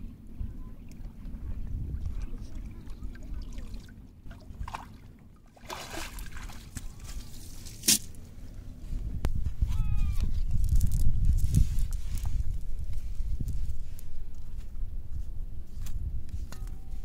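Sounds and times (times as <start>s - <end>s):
water splashing off a net: 5.6s - 7.0s.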